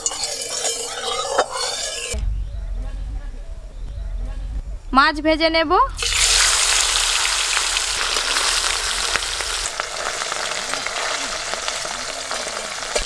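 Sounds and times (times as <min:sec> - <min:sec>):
fish sizzling in hot oil: 0:06.0 - 0:13.0.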